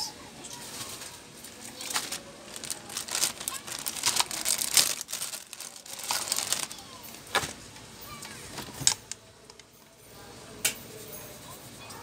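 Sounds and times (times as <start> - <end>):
plastic bag crinkling: 0.6 - 7.6.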